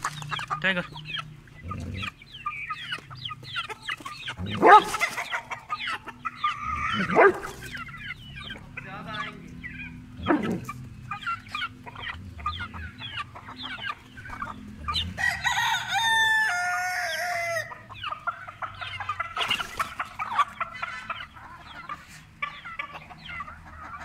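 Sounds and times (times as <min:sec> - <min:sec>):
chickens clucking: 0:00.0 - 0:24.0
rooster crowing: 0:14.9 - 0:17.9.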